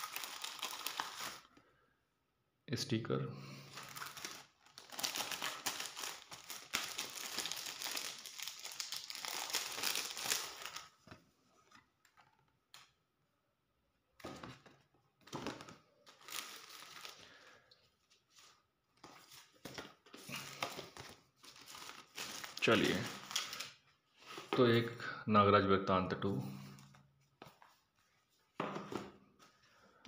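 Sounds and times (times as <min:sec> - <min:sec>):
plastic wrapper crinkling: 0:00.0 - 0:01.5, 0:03.7 - 0:11.1, 0:15.3 - 0:17.3, 0:19.4 - 0:23.8.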